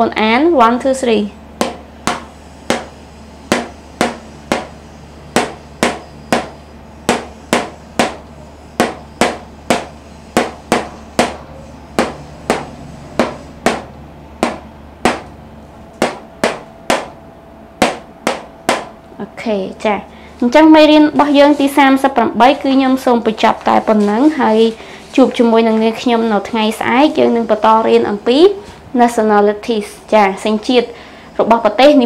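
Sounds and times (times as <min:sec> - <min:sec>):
marker tapping on whiteboard: 0:01.6 - 0:02.9, 0:03.5 - 0:04.8, 0:05.4 - 0:08.2, 0:08.8 - 0:11.4, 0:12.0 - 0:15.3, 0:16.0 - 0:17.2, 0:17.8 - 0:18.9.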